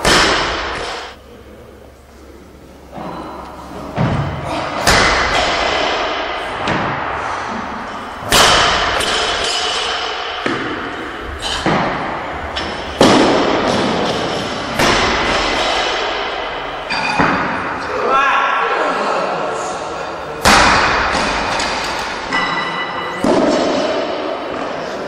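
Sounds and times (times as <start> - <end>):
metal ringing and echo: 2.8 - 18.0, 20.2 - 24.8.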